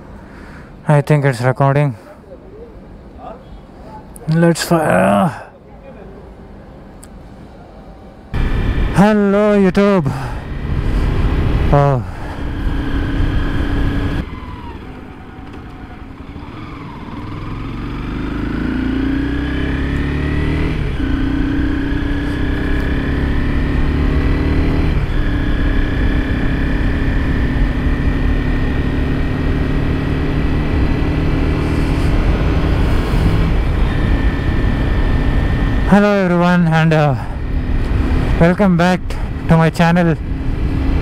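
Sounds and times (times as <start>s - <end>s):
road noise: 0.0s - 41.0s
motorcycle engine revving: 8.4s - 41.0s
wind noise: 30.9s - 35.9s.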